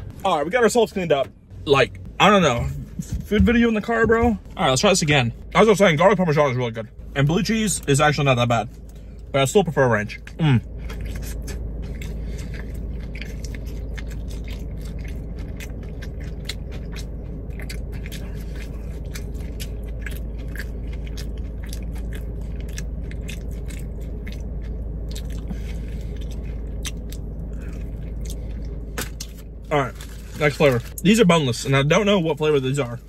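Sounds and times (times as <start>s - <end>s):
steady low hum: 0.0s - 33.0s
person chewing crunchy food: 10.2s - 31.0s.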